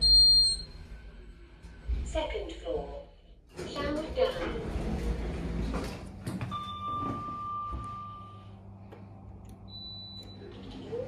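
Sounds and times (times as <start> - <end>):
low steady hum: 0.0 - 11.0
lift doors sliding open: 3.5 - 8.0.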